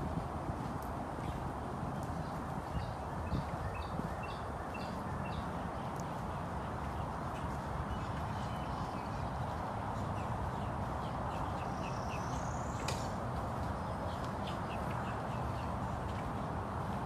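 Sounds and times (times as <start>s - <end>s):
steady rushing noise: 0.0s - 17.0s
small birds chirping: 1.2s - 17.0s.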